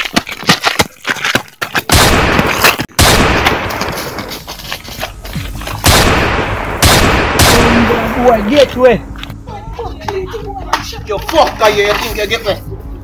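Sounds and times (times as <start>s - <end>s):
rapid gunshots: 1.9s - 4.0s, 5.8s - 8.1s
heavy blasts: 1.9s - 4.2s, 5.8s - 8.5s.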